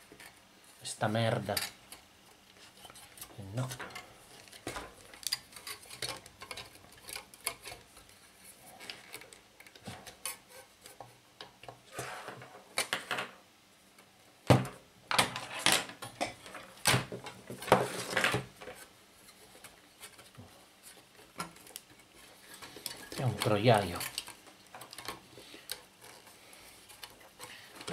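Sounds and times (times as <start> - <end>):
desk fan parts knocking and rattling: 2.9 - 8.1.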